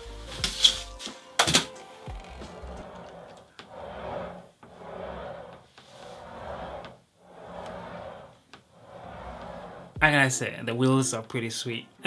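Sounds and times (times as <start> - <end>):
wheels rolling on wooden table: 2.1 - 10.0.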